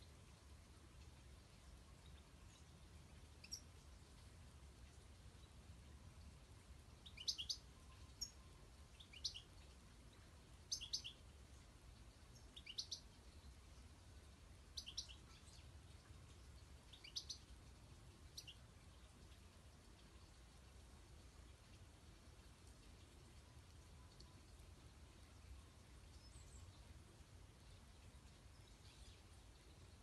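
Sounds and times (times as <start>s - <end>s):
goldfinch chirping: 7.0s - 9.5s, 10.7s - 11.2s, 12.4s - 13.1s, 14.7s - 15.6s, 16.9s - 17.5s, 18.3s - 18.6s.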